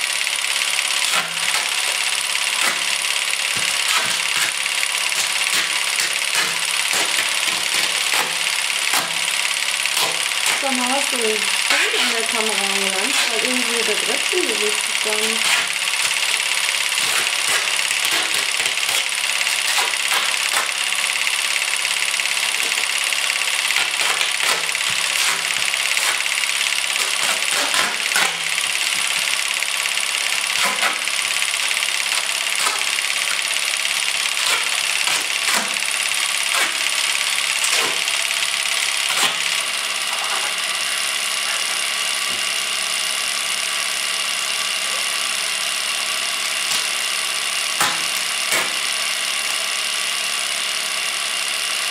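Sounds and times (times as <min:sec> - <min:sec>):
masking tape ripping off roll: 0:01.0 - 0:21.0, 0:22.4 - 0:42.4, 0:46.6 - 0:47.0, 0:47.7 - 0:49.7.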